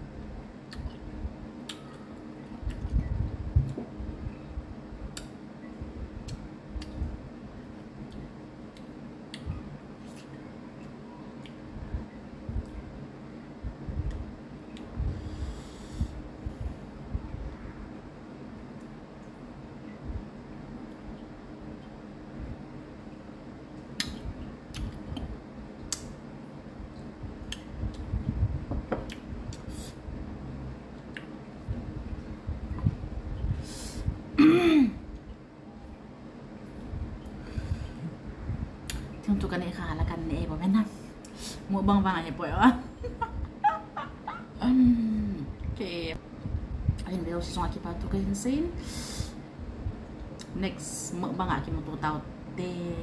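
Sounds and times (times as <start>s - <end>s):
lip and tongue clicks: 24.0s - 25.3s
low rumble: 26.9s - 34.4s, 36.8s - 40.7s, 41.8s - 48.8s.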